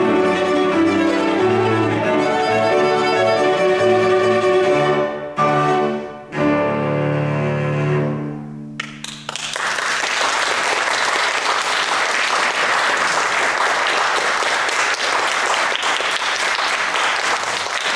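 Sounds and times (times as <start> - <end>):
audience applause: 8.8 - 17.9.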